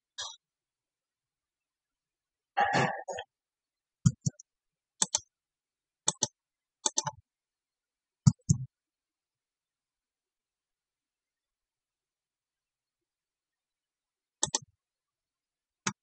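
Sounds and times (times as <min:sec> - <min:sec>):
mouse and keyboard clicking: 0:05.0 - 0:05.3, 0:06.1 - 0:07.2, 0:14.4 - 0:14.7.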